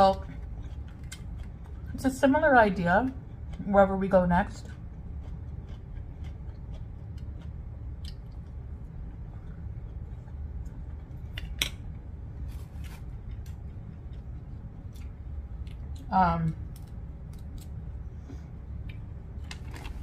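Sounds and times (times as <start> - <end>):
steady low hum: 0.0 - 20.0.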